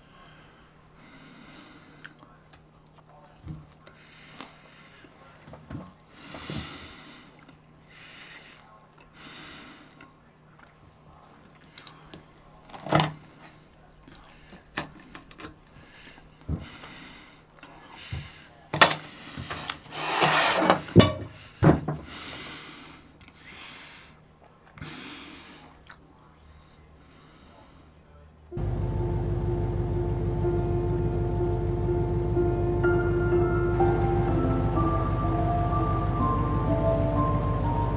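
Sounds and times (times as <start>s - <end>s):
soft breathing: 0.0s - 2.4s, 3.8s - 5.5s, 6.1s - 10.3s, 15.7s - 28.2s.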